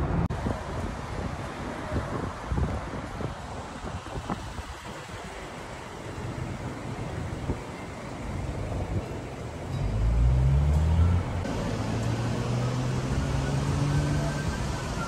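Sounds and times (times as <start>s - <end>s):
road traffic noise: 0.0s - 15.0s
car engine revving: 9.9s - 15.0s.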